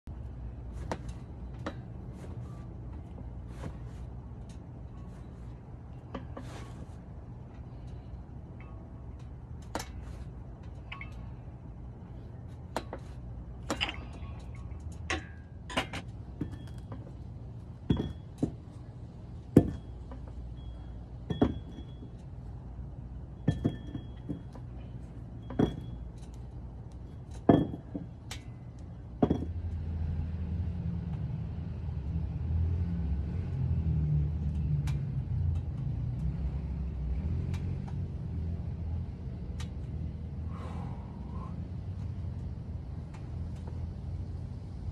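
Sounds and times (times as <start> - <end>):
steady low rumble: 0.1 - 30.0, 38.0 - 44.9
metal gym weights clanking: 13.6 - 17.2.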